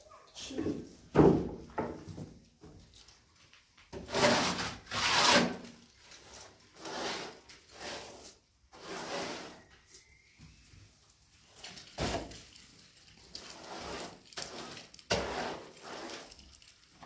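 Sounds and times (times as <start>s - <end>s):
trowel scraping wet plaster: 4.0s - 9.7s, 13.4s - 16.5s.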